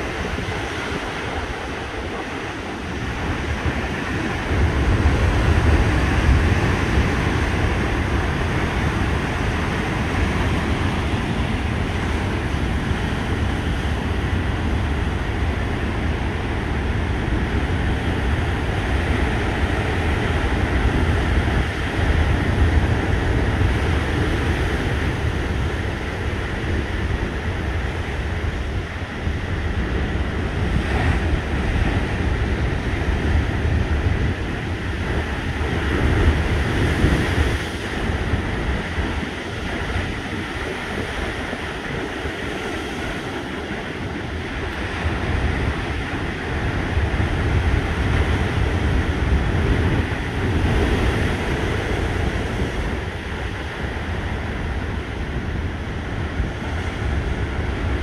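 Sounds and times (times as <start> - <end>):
heavy surf breaking: 0.0 - 58.0
wind buffeting microphone: 0.0 - 58.0.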